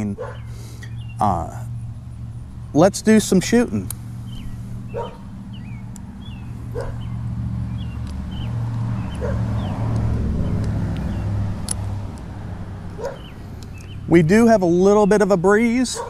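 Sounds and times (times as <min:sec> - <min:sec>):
small birds chirping: 0:00.0 - 0:16.0
vehicle engine rumble: 0:00.0 - 0:16.0
dog barking: 0:00.2 - 0:00.5, 0:04.9 - 0:05.2, 0:06.7 - 0:07.1, 0:09.1 - 0:09.5, 0:13.0 - 0:13.3.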